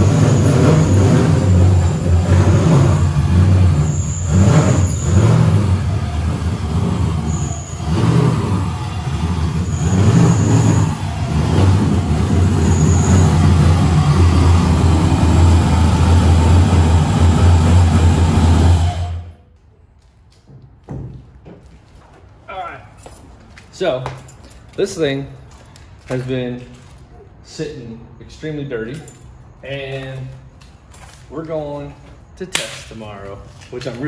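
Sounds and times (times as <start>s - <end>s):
car engine idling and pulling: 0.0s - 20.1s
short high squeaks: 0.1s - 14.4s.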